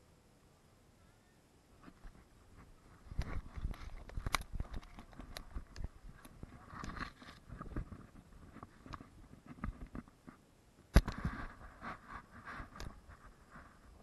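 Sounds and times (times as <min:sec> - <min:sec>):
camera handling rustling: 0:03.0 - 0:10.1.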